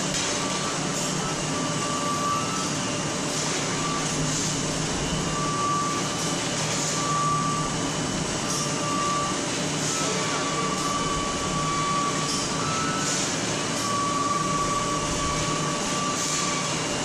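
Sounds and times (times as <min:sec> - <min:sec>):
noodle machine and conveyor running: 0:00.0 - 0:17.0.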